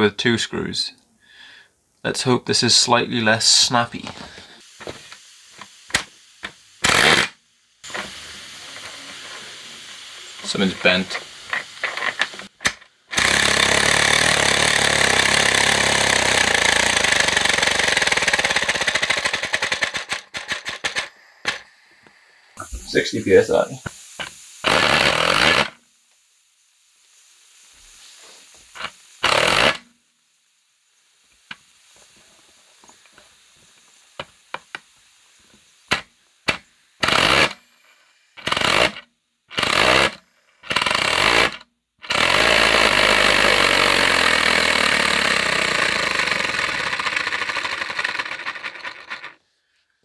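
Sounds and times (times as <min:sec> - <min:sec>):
compressed-air engine running: 0:06.8 - 0:23.8, 0:24.6 - 0:25.7, 0:28.8 - 0:29.8, 0:37.0 - 0:37.7, 0:39.6 - 0:49.4.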